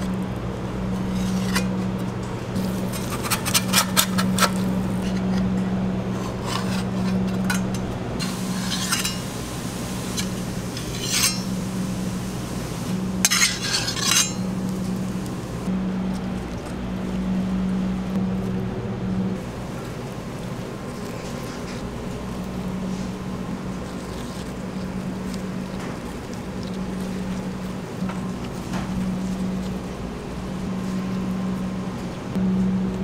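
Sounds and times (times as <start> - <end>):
kitchen equipment humming: 0.0 - 33.0
metal tongs clinking and scraping: 1.0 - 1.9, 2.6 - 5.5, 6.1 - 9.4, 10.1 - 11.6, 13.2 - 14.6.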